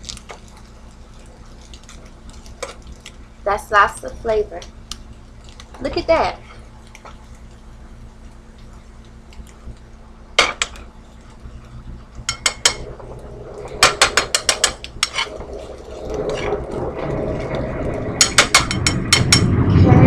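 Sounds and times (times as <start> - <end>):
spatula scraping skillet: 5.5 - 7.3, 12.3 - 19.5.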